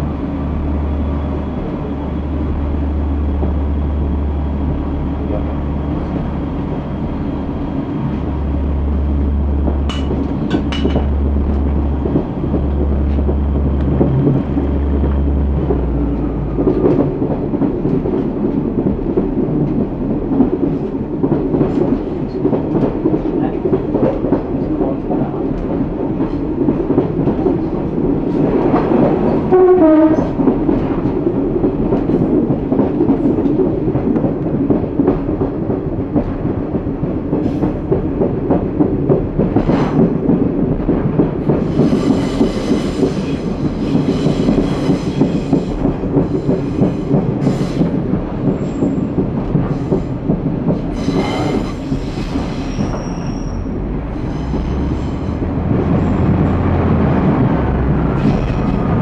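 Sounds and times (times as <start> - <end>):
diesel engine drone: 0.0 - 17.1
train wheel clatter: 1.1 - 59.0.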